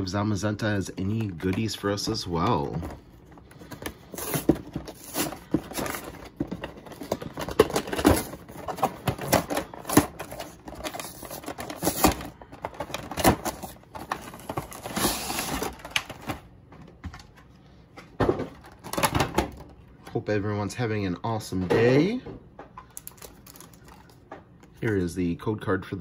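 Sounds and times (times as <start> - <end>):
packaging rustling: 0.8 - 16.5, 22.9 - 24.9.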